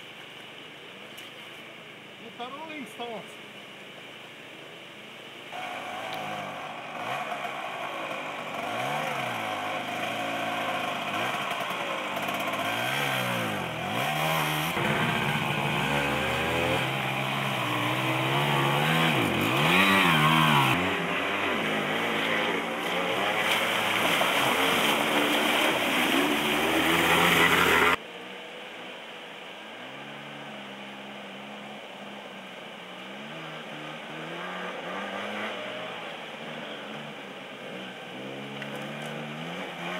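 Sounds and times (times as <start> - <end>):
moped engines revving: 5.5 - 28.0, 33.1 - 39.9.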